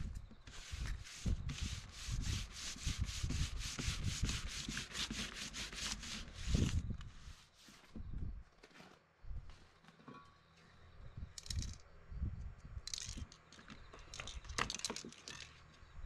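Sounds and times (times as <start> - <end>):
paper rubbing on board: 0.5 - 7.9.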